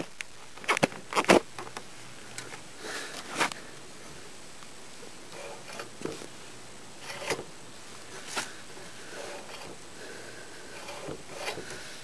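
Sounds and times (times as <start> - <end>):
metal and cable rasping scrapes: 5.3 - 6.2, 7.0 - 7.5, 8.1 - 9.8, 10.6 - 12.0.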